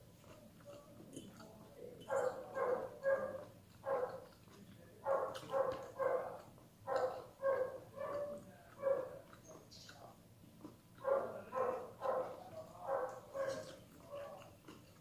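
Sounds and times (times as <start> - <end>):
dog barking: 2.1 - 4.3, 5.0 - 9.4, 11.0 - 14.5.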